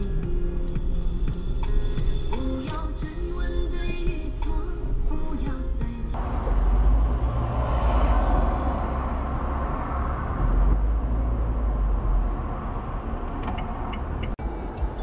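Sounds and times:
car engine and road noise: 6.1 - 15.0.

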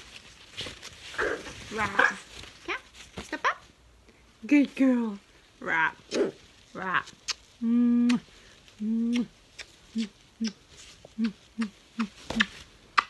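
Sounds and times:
lip-smacking kisses: 7.2 - 8.2, 9.0 - 10.6, 11.2 - 13.0.

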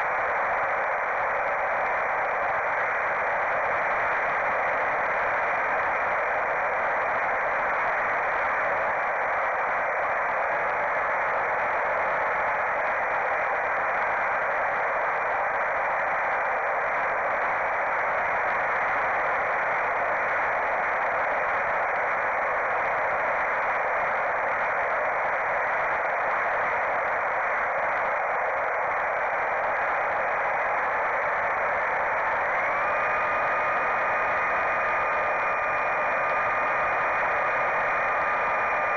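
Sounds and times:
faint electric motor tone: 31.7 - 38.9.

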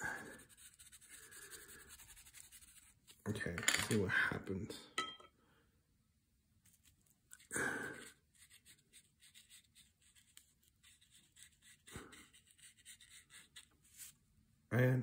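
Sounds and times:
paintbrush scratching on cardboard: 0.0 - 3.2, 8.0 - 14.2.

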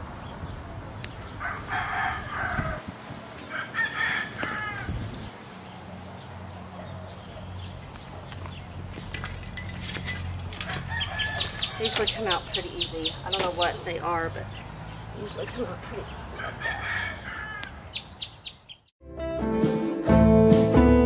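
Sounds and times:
rooster crowing: 1.4 - 2.8, 3.4 - 5.0, 10.6 - 12.0, 16.4 - 17.8.

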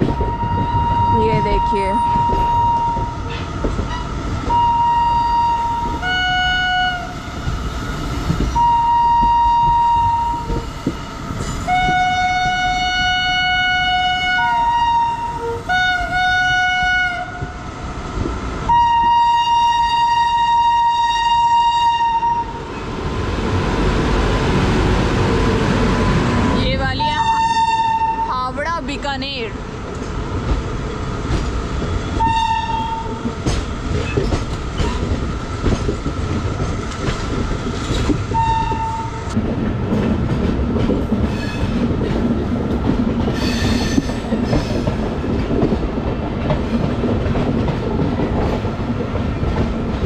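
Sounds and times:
single-pitched locomotive horn: 0.0 - 7.2, 8.6 - 10.7, 11.6 - 17.6, 18.7 - 22.6, 27.0 - 28.5, 32.2 - 33.2, 38.3 - 39.3
train wheels rumbling on rails: 0.0 - 50.0
locomotive chord horn: 4.5 - 7.2, 11.7 - 17.5, 18.7 - 22.6.

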